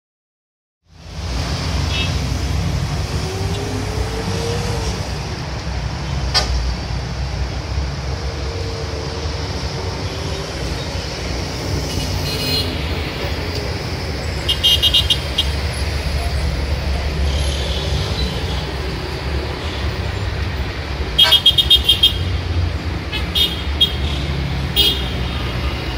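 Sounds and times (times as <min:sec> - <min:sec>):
heavy traffic rumble: 0:00.8 - 0:25.9
car horns tooting: 0:14.5 - 0:15.6, 0:21.2 - 0:22.3.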